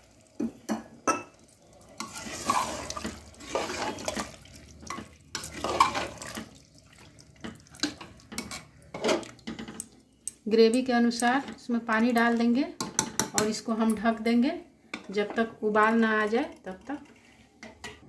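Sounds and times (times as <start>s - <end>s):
liquid sloshing in a pot: 0.1s - 9.9s.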